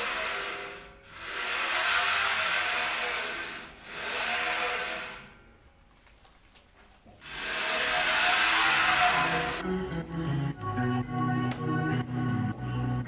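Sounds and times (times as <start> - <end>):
gantry rolling along rails: 0.0 - 5.6, 7.2 - 9.6.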